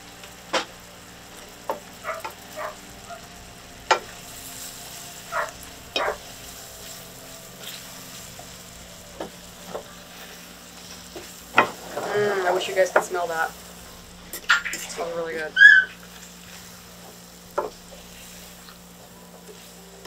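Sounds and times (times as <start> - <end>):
vegetables sizzling in a pan: 0.0 - 20.0
spatula scraping a pan: 3.9 - 13.5.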